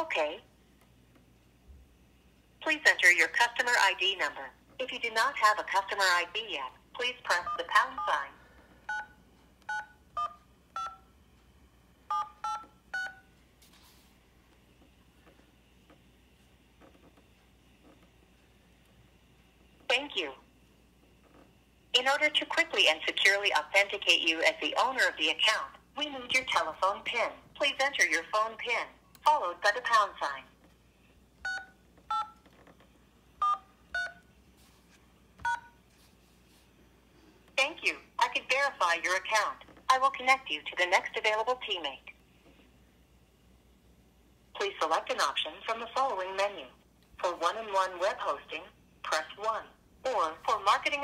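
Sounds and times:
keypad touch-tone beeps: 0:07.3 - 0:08.2, 0:08.9 - 0:11.1, 0:12.1 - 0:13.3, 0:31.4 - 0:32.4, 0:33.4 - 0:34.3, 0:35.4 - 0:35.8.

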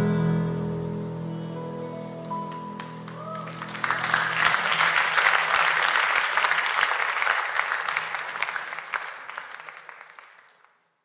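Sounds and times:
crowd applauding: 0:02.5 - 0:11.0.

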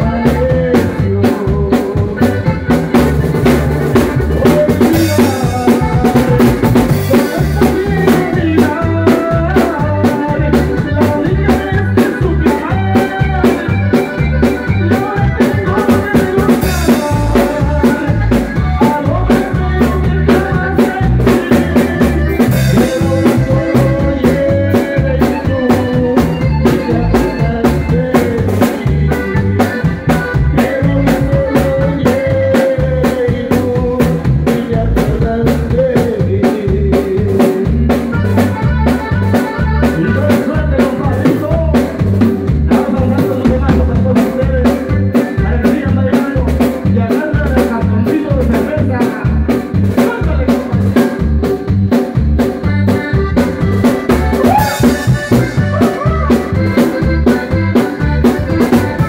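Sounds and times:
drum kit beat: 0:00.0 - 0:59.0
keyboards: 0:00.0 - 0:59.0
person singing: 0:00.0 - 0:59.0.

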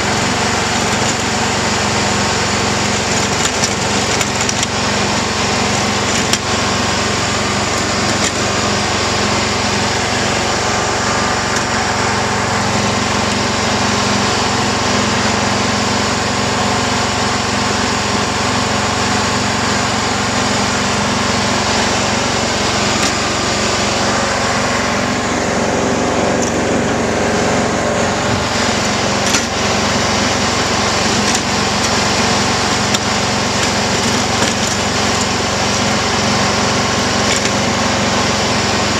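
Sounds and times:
garden tractor engine running: 0:00.0 - 0:38.9.

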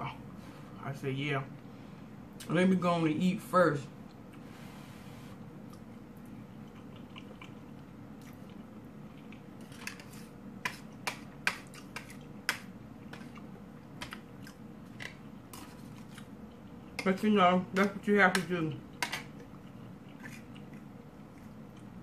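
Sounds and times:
close-up chewing: 0:05.6 - 0:10.2, 0:19.3 - 0:22.0.

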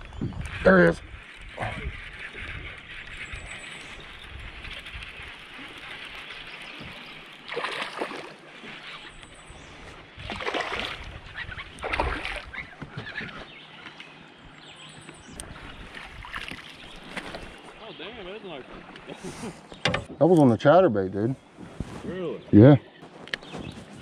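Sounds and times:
water splashing: 0:04.8 - 0:09.2, 0:10.2 - 0:12.8, 0:15.8 - 0:19.2.

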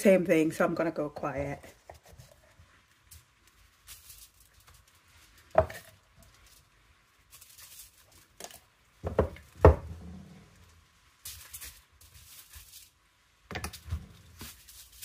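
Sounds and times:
knocks on kitchen counter: 0:09.0 - 0:10.0.

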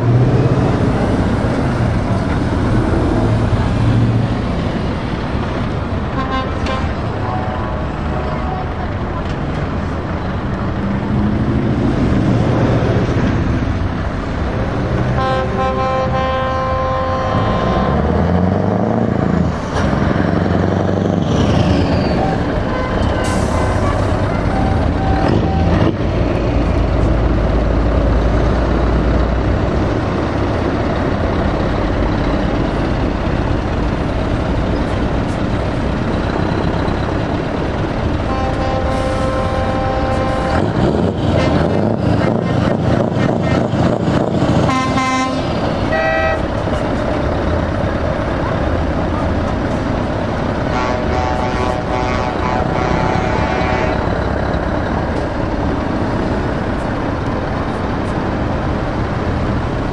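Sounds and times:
truck engines revving past: 0:00.0 - 0:59.9
air horn chord: 0:15.2 - 0:18.0, 0:38.3 - 0:40.6, 0:44.7 - 0:46.4, 0:50.8 - 0:54.0.

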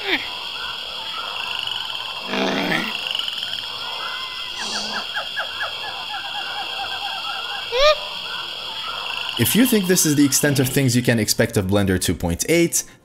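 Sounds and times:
high insect buzz: 0:00.0 - 0:11.3
short chirping calls: 0:00.2 - 0:11.0
creature croaking: 0:02.2 - 0:03.1, 0:04.5 - 0:06.0.

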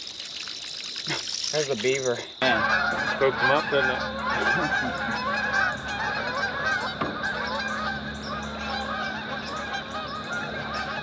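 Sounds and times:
geese honking: 0:02.4 - 0:11.0.

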